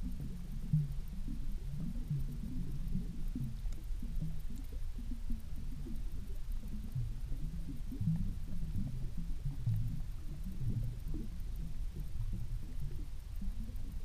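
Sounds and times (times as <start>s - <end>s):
muffled underwater rumbling: 0.0s - 14.0s.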